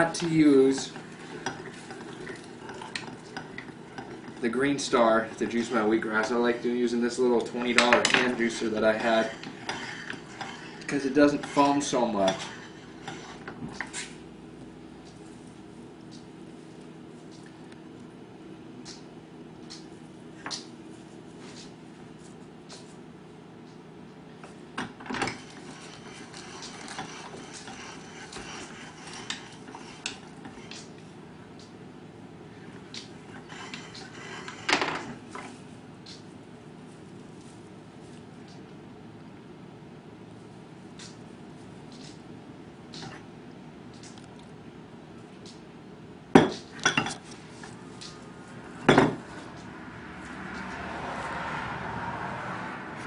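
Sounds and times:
steady low hum: 0:00.0 - 0:51.2
dishes knocking on wooden counter: 0:48.9 - 0:49.2.

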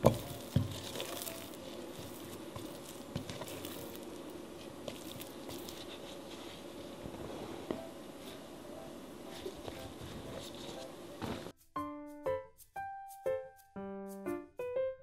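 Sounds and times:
dough squishing: 0:00.0 - 0:07.3.

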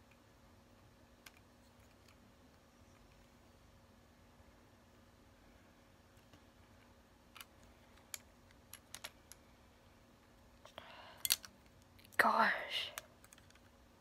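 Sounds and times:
plastic toy parts clicking: 0:07.4 - 0:09.4, 0:11.2 - 0:11.6.

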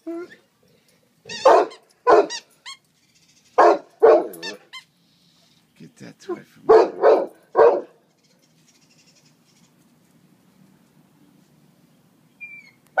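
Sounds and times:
puppy barking: 0:01.3 - 0:02.5, 0:03.6 - 0:04.7, 0:06.7 - 0:08.0.

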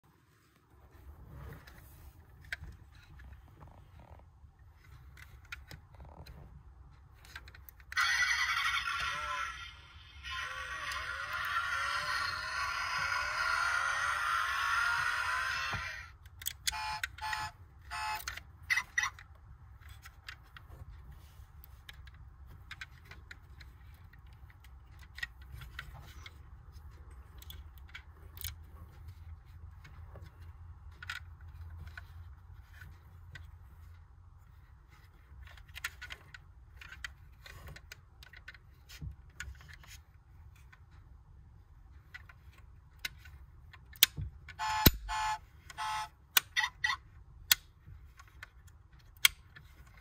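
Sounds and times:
small clicks and taps of toy car: 0:18.0 - 0:41.0, 0:41.9 - 0:44.6, 0:45.7 - 0:50.0.

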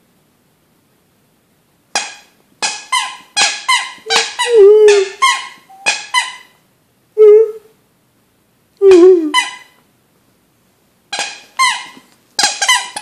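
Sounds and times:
squeaky toy squeaks: 0:01.9 - 0:06.6, 0:08.8 - 0:09.8, 0:11.1 - 0:13.0.

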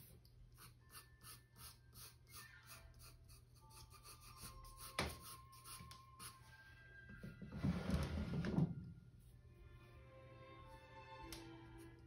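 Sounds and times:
pencil scratching on paper: 0:00.0 - 0:06.4
soft background music: 0:00.0 - 0:12.0.

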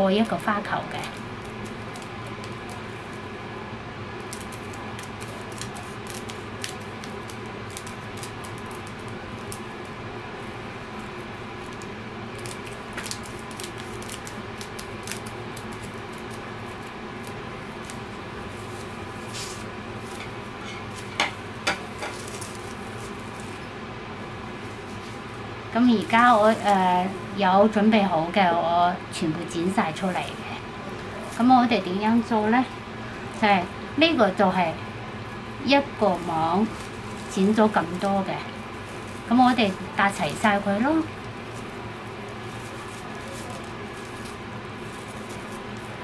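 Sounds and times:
scissors snipping plastic netting: 0:04.3 - 0:09.6, 0:11.6 - 0:18.0.

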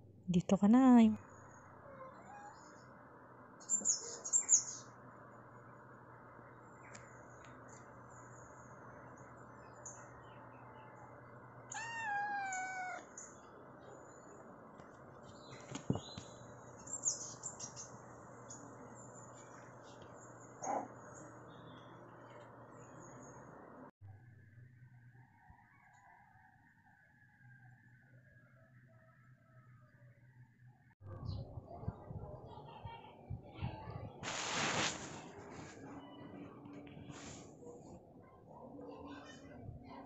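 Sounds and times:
low steady hum: 0:00.0 - 0:25.1
kitten meowing: 0:11.7 - 0:13.1.

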